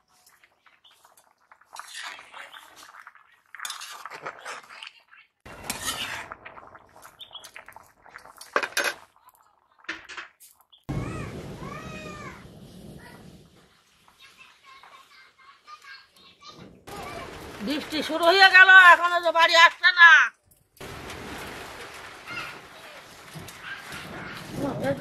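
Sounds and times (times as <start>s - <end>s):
metal ladle scraping a wok: 3.6s - 6.4s.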